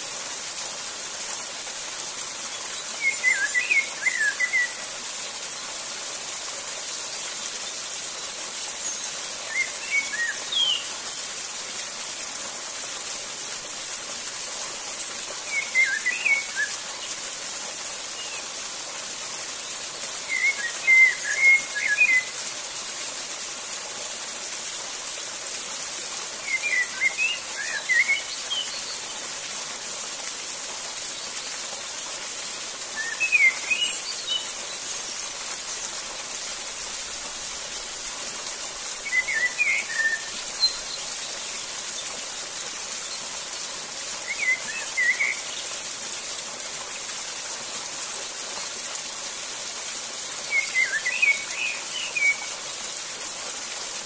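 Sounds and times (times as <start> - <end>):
waterfall rushing: 0.0 - 54.0.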